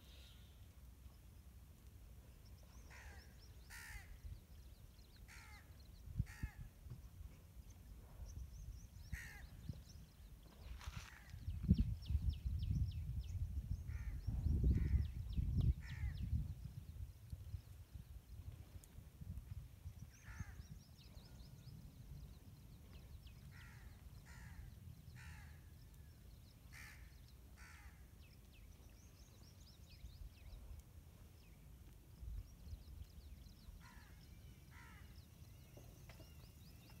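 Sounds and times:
crows cawing: 2.9 - 4.2, 5.3 - 5.7, 6.3 - 6.6, 9.1 - 9.4, 23.5 - 25.6, 26.7 - 28.0, 33.8 - 35.1
small birds chirping: 19.8 - 37.0.

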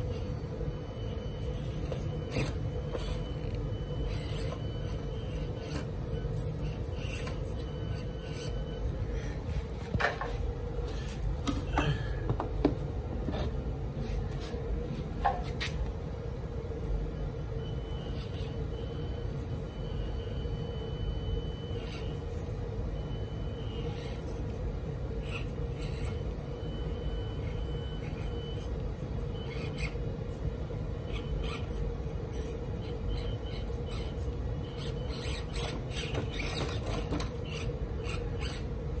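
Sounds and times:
small electric motor whining: 0.0 - 9.1, 20.8 - 30.4, 31.0 - 39.0.

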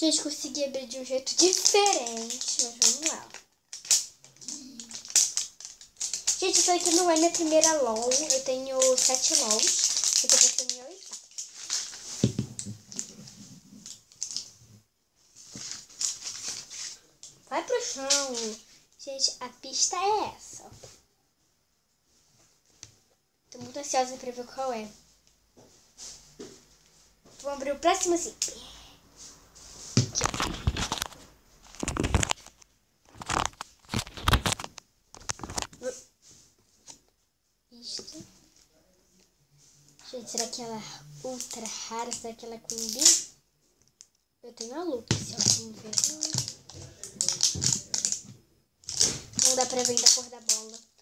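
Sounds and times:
plastic wrapping crinkling: 1.0 - 14.7, 15.3 - 18.7, 29.9 - 36.0, 41.3 - 43.3, 43.9 - 51.0.

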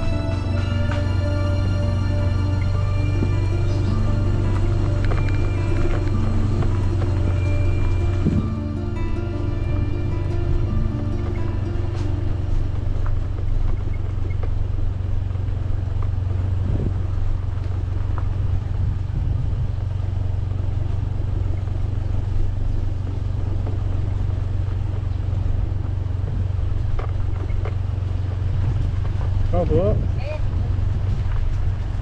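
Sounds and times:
motorcycle engine low drone: 0.0 - 32.0.

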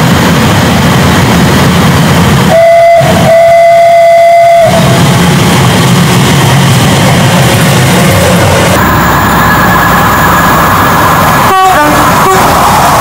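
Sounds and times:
train horn blasts: 2.5 - 5.0, 11.4 - 12.6
low rumble: 4.6 - 13.0.

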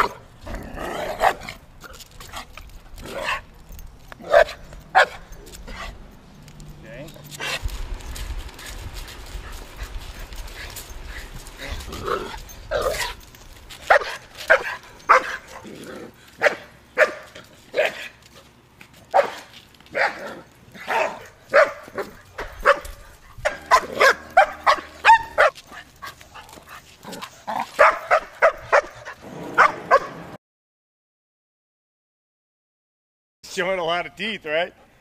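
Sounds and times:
dog barking: 4.2 - 5.3, 13.9 - 15.4, 16.4 - 18.1, 19.1 - 19.4, 20.0 - 25.6, 27.8 - 30.2.

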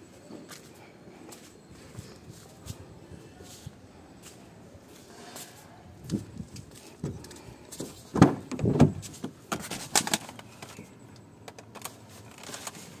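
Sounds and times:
person getting into car: 6.1 - 10.6.

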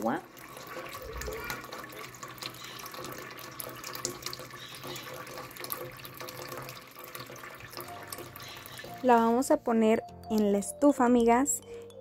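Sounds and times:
tap water running into pot: 0.0 - 9.6.

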